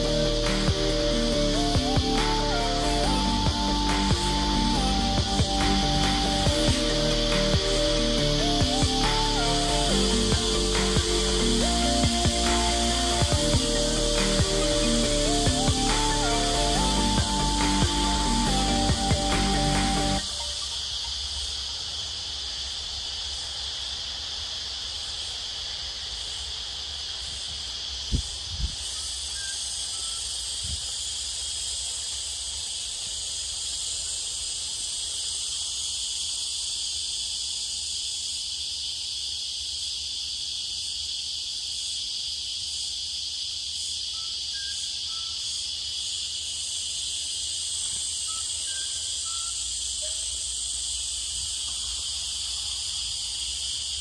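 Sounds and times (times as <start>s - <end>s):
insects buzzing: 0.0s - 54.0s.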